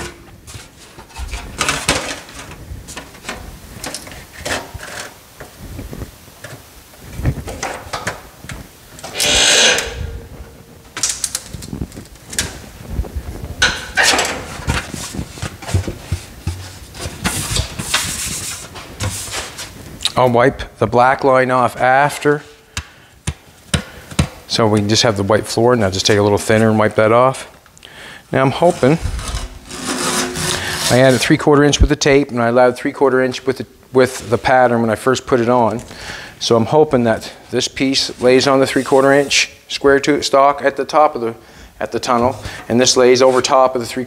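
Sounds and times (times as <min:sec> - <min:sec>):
metal sheet clanking and rattling: 0:09.0 - 0:11.6, 0:13.6 - 0:15.0.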